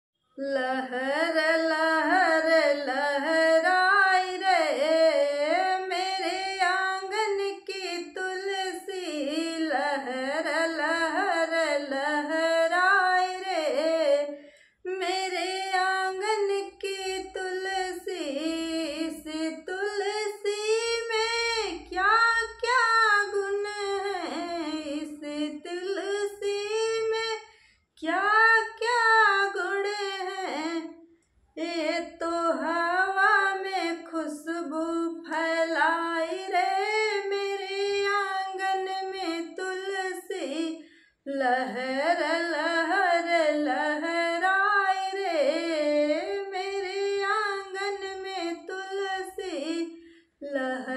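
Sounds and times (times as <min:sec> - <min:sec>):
woman singing unaccompanied: 0:00.4 - 0:27.4, 0:28.0 - 0:31.0, 0:31.6 - 0:50.9.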